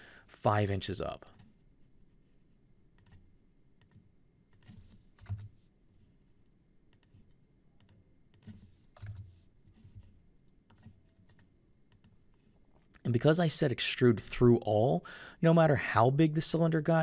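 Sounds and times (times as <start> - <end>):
computer mouse clicks: 3.0 - 3.2, 3.8 - 5.5, 6.9 - 9.3, 10.6 - 12.4.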